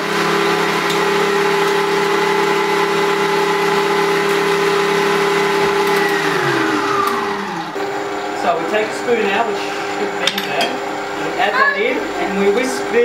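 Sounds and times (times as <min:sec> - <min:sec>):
electric mixer motor whine: 0:00.0 - 0:10.2.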